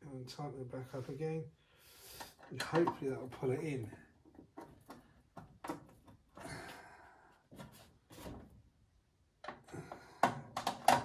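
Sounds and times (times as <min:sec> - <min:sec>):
sharp clicks and knocks: 0:04.3 - 0:06.4, 0:09.4 - 0:11.0.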